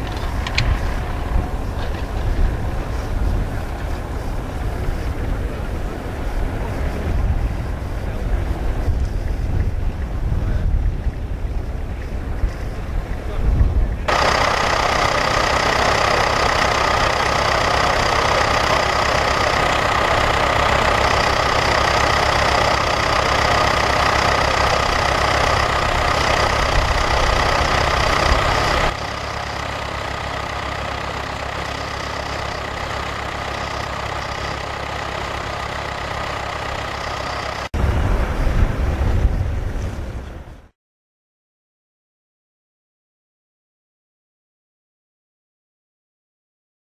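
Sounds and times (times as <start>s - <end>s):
constant high whine: 0.0s - 40.7s
tractor engine rumble: 0.0s - 40.8s.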